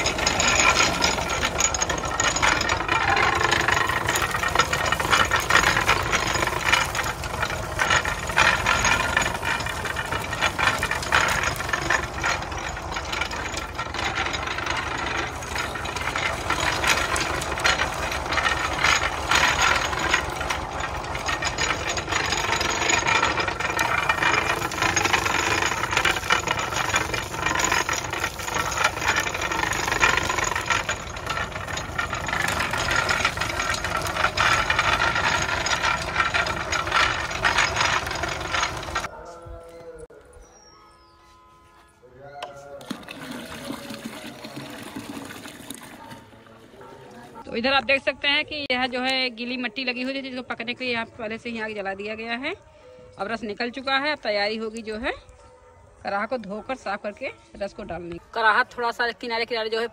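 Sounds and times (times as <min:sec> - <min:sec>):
crusher rattling and clattering: 0:00.0 - 0:39.1
tractor engine running: 0:00.0 - 0:39.1.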